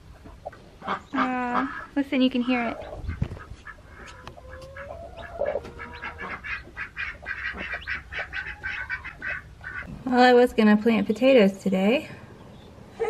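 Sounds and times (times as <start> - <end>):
chick peeping: 0.1 - 9.9.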